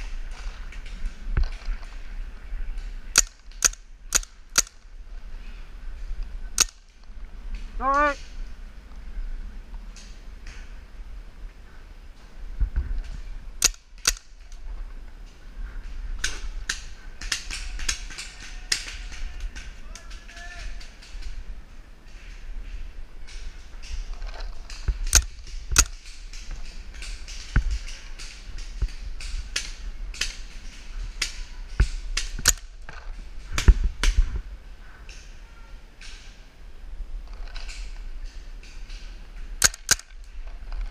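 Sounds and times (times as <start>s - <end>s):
paintball markers firing: 3.1s - 4.8s, 13.6s - 14.3s, 39.6s - 40.2s.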